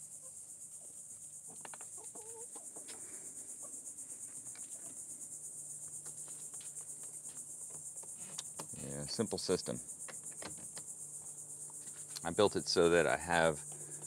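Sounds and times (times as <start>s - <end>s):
insects chirring: 0.0s - 14.0s
chickens clucking: 0.2s - 5.1s.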